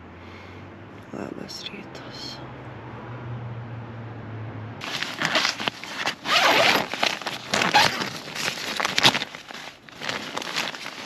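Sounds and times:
nylon flaps rustling: 0:04.8 - 0:11.0
tent door unzipping: 0:04.8 - 0:11.0.

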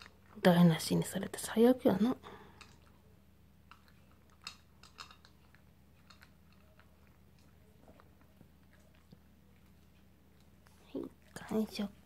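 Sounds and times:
dog chewing with sharp clicks: 0:02.4 - 0:11.5.

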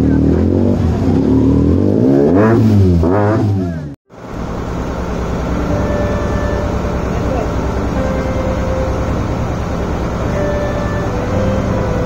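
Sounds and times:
boat engine throbbing: 0:00.0 - 0:12.0
motorcycle engine revving: 0:00.0 - 0:12.0
motorcycle engines idling: 0:04.2 - 0:12.0.

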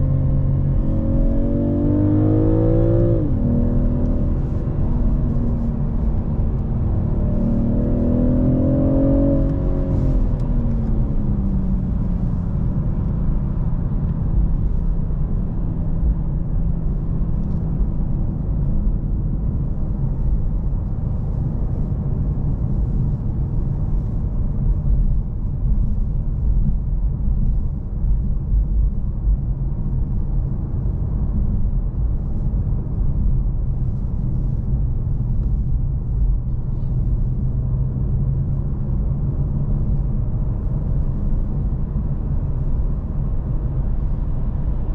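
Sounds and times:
car engine from inside cabin: 0:00.0 - 0:44.9
road noise: 0:00.0 - 0:44.9.

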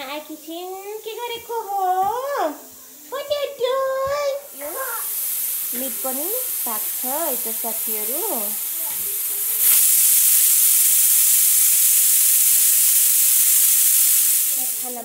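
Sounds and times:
pressure cooker steam hissing: 0:00.0 - 0:15.0.

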